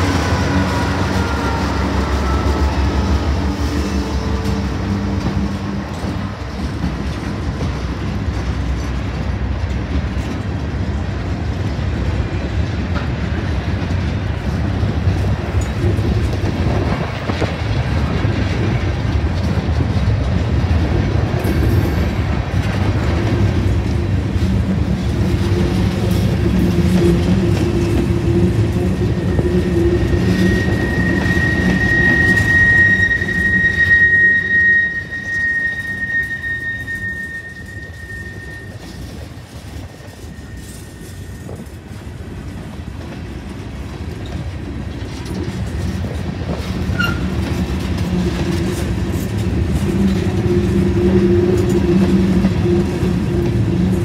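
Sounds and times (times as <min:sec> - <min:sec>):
high-pitched squeal: 0:00.0 - 0:05.1, 0:25.9 - 0:41.7
locomotive engine: 0:00.0 - 0:54.0
train rumble: 0:00.0 - 0:54.0.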